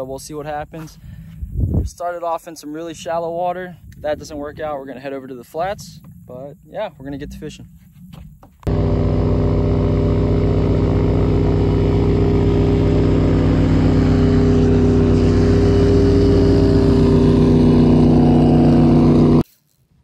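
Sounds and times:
outboard motor running: 8.6s - 19.4s.

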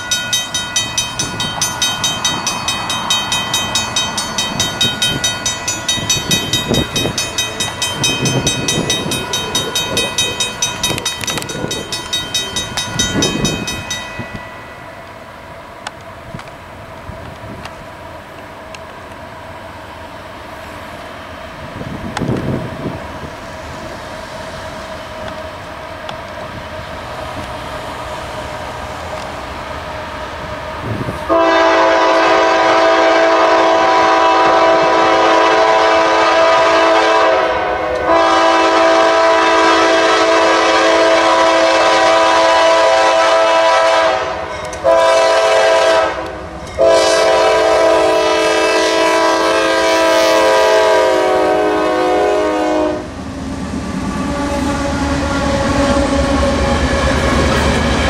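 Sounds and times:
freight train rumbling: 0.0s - 58.0s
locomotive air horn: 31.3s - 53.1s, 54.1s - 57.4s.

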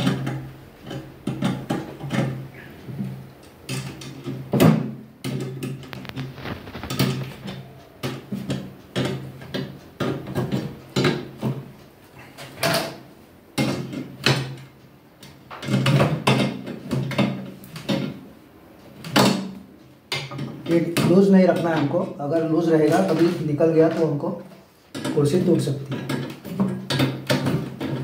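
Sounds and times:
metal tube frame rattling: 5.3s - 11.6s.

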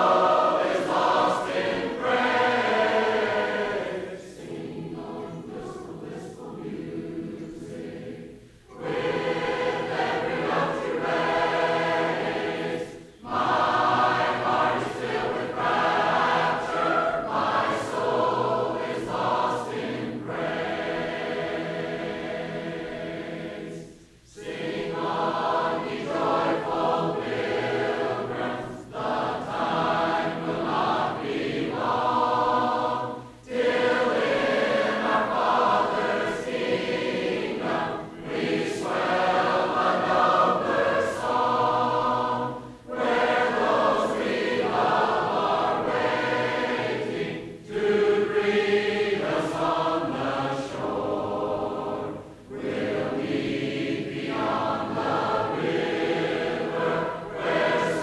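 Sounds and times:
congregation singing a hymn: 0.0s - 58.0s.

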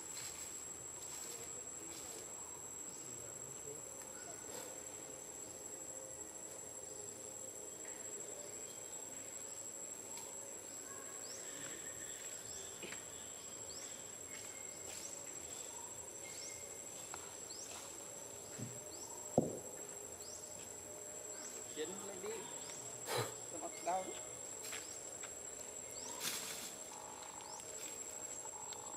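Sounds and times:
insects droning: 0.0s - 28.9s
sharp knock: 19.4s - 19.7s.

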